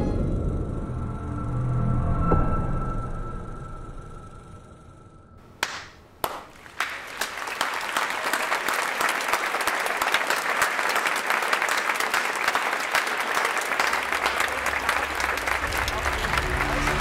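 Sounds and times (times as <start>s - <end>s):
applause: 5.5s - 17.0s
hand claps: 5.5s - 17.0s.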